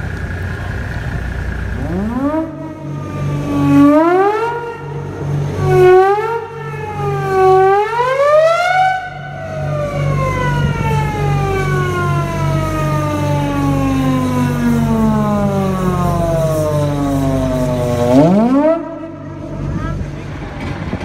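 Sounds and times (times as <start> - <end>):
low pulsing throb: 0.0 - 21.0
ship's hooter wailing: 1.8 - 13.4.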